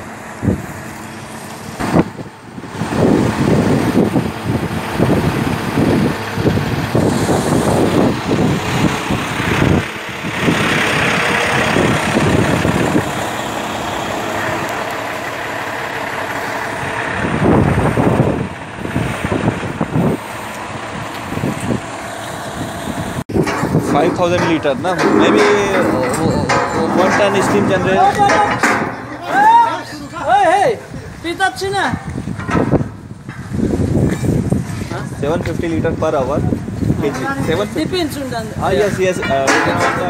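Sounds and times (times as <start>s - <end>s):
wind buffeting microphone: 0.0s - 15.0s, 15.9s - 40.0s
truck engine running: 0.0s - 40.0s.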